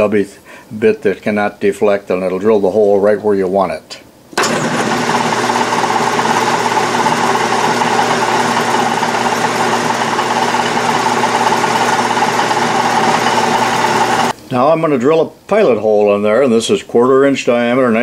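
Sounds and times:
metal lathe running: 4.4s - 14.3s.

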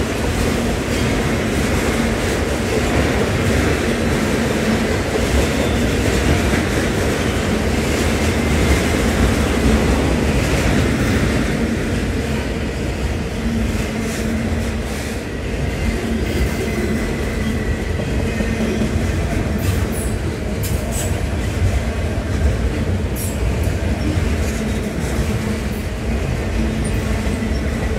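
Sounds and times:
train wheels rumbling on rails: 0.0s - 27.9s.

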